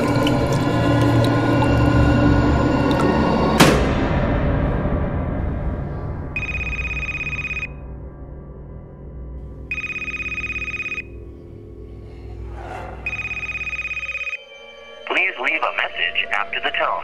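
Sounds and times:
low dark rumbling music: 0:00.0 - 0:15.5
telephone ringing: 0:06.4 - 0:07.8, 0:09.7 - 0:11.1, 0:13.1 - 0:14.4.

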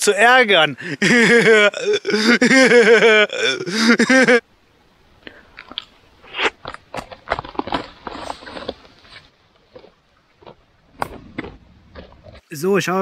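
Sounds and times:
twigs crackling underfoot: 0:05.2 - 0:12.6.

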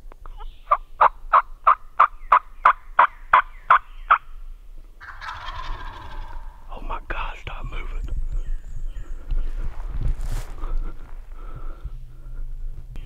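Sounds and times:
turkey yelping: 0:05.0 - 0:06.6
turkey rattling call: 0:05.0 - 0:06.7.

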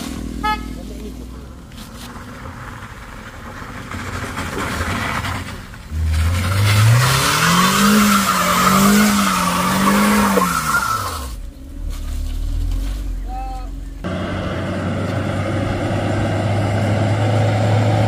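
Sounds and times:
engine revving hard: 0:06.0 - 0:11.3.

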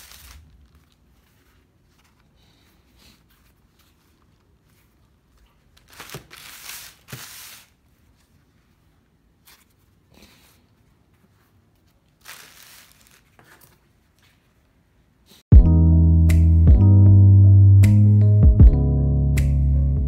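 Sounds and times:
plastic bag crinkling: 0:00.0 - 0:02.0, 0:05.6 - 0:07.8, 0:12.0 - 0:13.4.

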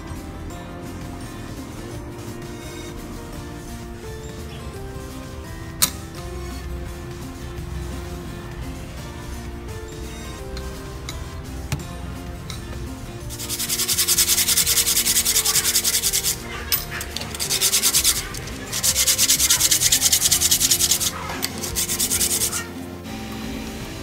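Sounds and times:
metal rubbed on sandpaper: 0:13.3 - 0:22.8.

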